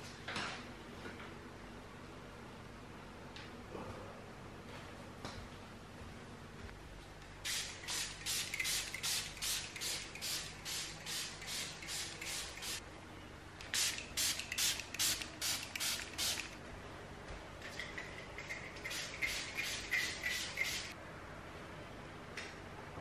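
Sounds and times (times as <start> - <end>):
spray bottle squirts: 7.5 - 12.8, 13.8 - 16.6, 18.4 - 20.9.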